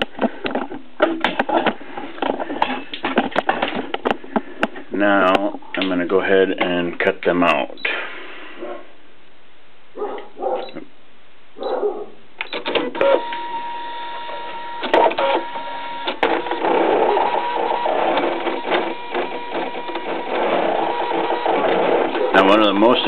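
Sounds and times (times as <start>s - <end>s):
cutting machine motors whining: 12.8s - 23.0s.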